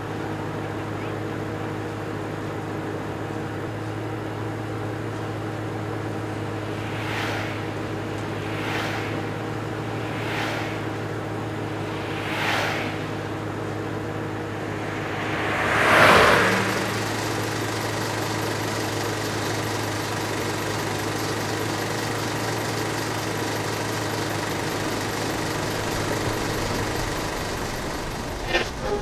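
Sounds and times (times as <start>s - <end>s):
car cabin highway drone: 0.0s - 29.0s
vehicles whooshing past: 5.6s - 19.2s.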